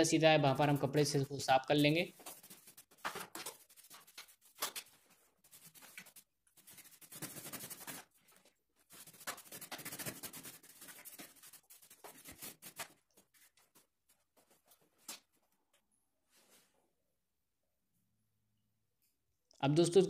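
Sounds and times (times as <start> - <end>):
brush scrubbing bicycle frame: 2.1 - 14.6.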